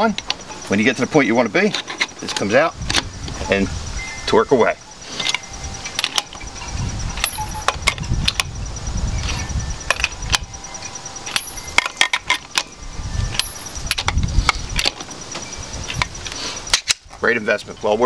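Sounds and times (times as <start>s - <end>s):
wrench socket clinking on lug nuts: 5.2s - 8.6s, 9.3s - 17.2s.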